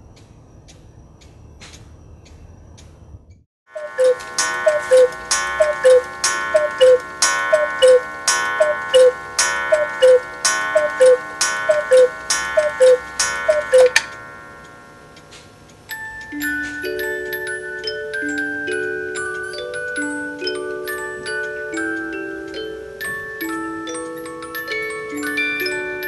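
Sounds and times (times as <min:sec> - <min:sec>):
cuckoo clock calls: 0:03.7 - 0:26.0
metallic strike ringing: 0:03.8 - 0:17.1.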